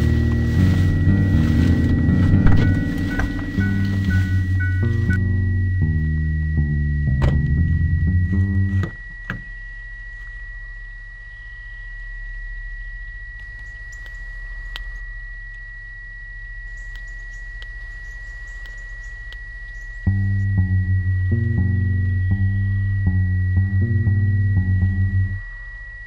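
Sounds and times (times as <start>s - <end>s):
bass and guitar music: 0.0s - 9.5s, 20.0s - 25.5s
low rumble: 0.0s - 9.8s, 16.4s - 26.0s
high-pitched tone: 0.0s - 26.0s
faint bird chirps: 9.4s - 15.1s, 16.4s - 26.0s.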